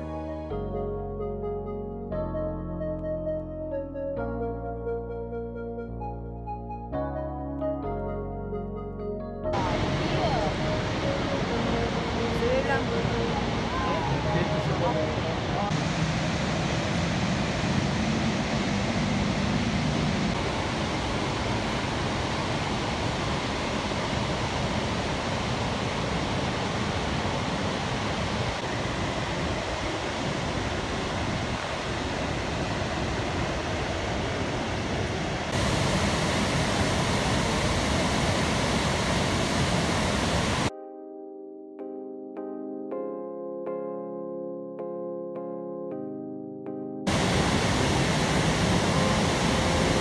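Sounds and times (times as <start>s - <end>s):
waterfall roaring: 9.6s - 40.7s, 47.1s - 50.0s.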